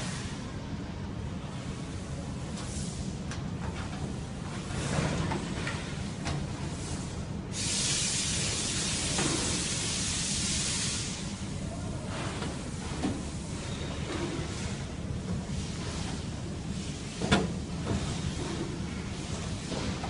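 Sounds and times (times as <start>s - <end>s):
steady hiss: 6.7s - 13.6s.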